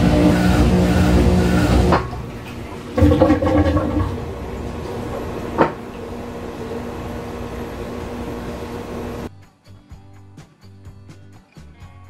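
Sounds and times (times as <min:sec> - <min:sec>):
washer motor hum: 0:00.0 - 0:09.3.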